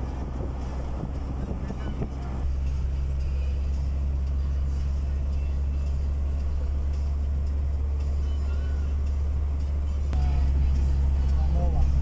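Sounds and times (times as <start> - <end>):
vehicle road rumble and tyre noise: 0.0 - 12.0.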